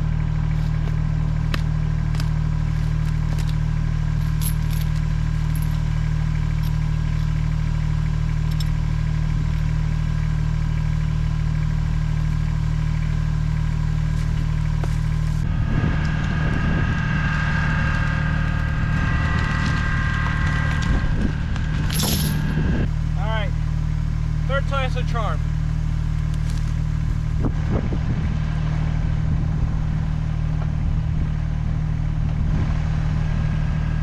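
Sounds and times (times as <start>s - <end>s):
mechanical rumble: 0.0s - 34.0s
tractor diesel engine running: 0.0s - 34.0s
high-pitched whine: 12.8s - 34.0s.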